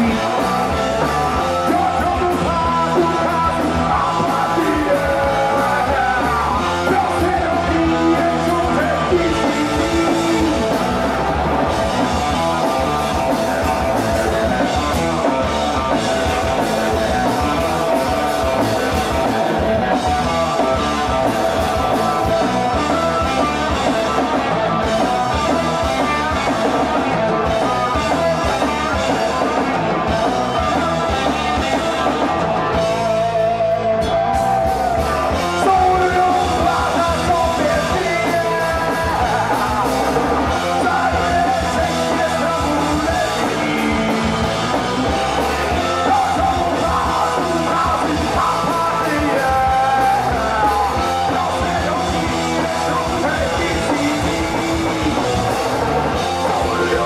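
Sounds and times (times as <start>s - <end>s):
man singing into microphone: 0.0s - 11.0s, 34.5s - 44.7s, 45.5s - 55.7s, 56.4s - 57.0s
bass guitar: 0.0s - 57.0s
drum kit: 0.0s - 57.0s
electric guitars: 0.0s - 57.0s.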